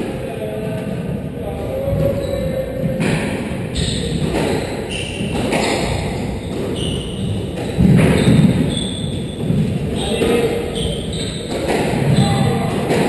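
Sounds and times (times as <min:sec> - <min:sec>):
shoes squeaking on wooden floor: 0:03.7 - 0:13.0.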